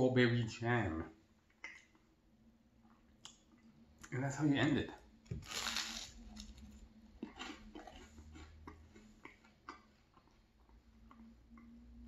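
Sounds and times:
crunchy toast bite: 0:05.3 - 0:09.8
chewing with crunches: 0:05.4 - 0:11.8.

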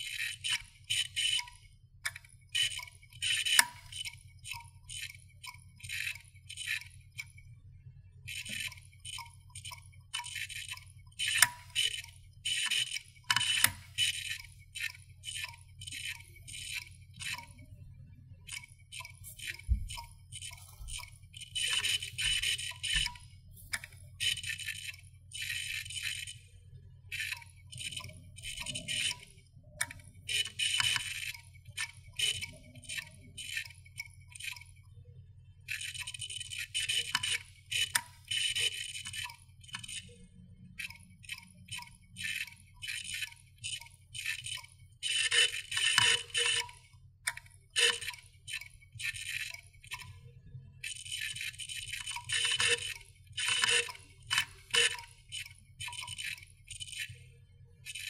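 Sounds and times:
hard disk drive clicking: 0:00.0 - 0:07.4, 0:08.3 - 0:17.6, 0:18.5 - 0:26.4, 0:27.1 - 0:34.7, 0:35.7 - 0:40.2, 0:40.8 - 0:50.1, 0:50.8 - 0:57.2
steady low hum: 0:00.0 - 0:32.8.

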